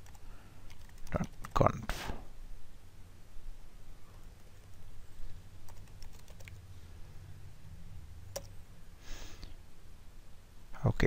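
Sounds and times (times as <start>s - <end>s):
low steady hum: 0.0s - 11.0s
keyboard keys clicking: 5.7s - 6.6s, 8.3s - 8.5s.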